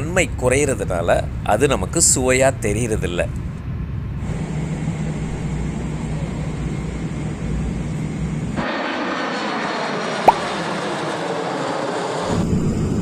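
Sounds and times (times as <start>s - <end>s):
airliner cabin drone: 2.9s - 13.0s.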